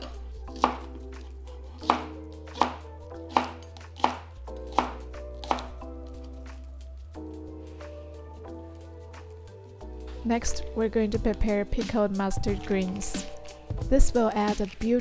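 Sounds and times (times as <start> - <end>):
knife chopping scallions: 0.0 - 5.8
soft background music: 0.0 - 15.0.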